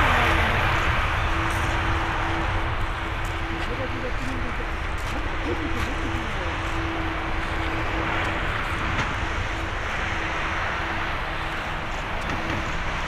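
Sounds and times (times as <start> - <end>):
jet engines humming: 0.0 - 13.0.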